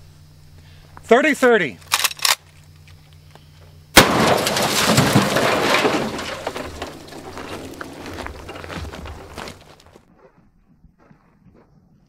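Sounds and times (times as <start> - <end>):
rifle shot: 4.0 - 4.3.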